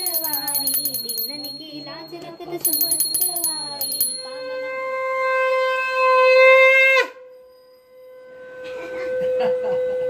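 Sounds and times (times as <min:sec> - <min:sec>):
conch shell blowing: 0:04.3 - 0:10.0.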